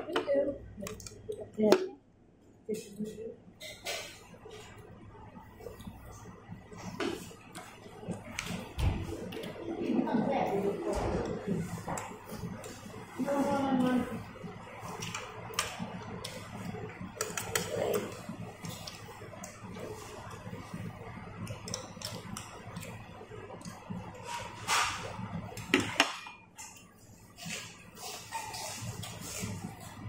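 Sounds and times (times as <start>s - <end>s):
low room murmur: 0.0s - 30.0s
chopsticks clicking on bowls: 0.1s - 1.8s, 17.1s - 19.6s, 21.3s - 23.9s.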